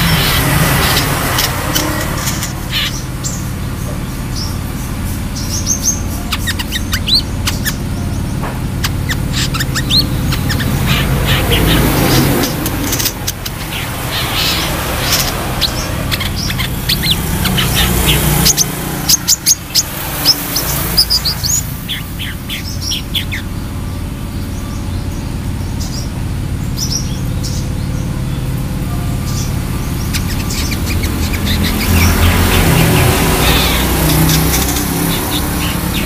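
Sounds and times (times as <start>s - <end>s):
bird chirping: 0.0s - 36.0s.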